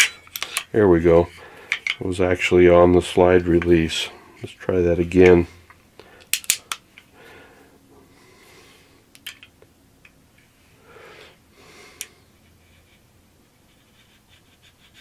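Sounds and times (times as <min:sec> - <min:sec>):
soft breathing: 0:01.3 - 0:01.9, 0:07.0 - 0:09.1, 0:10.4 - 0:13.0.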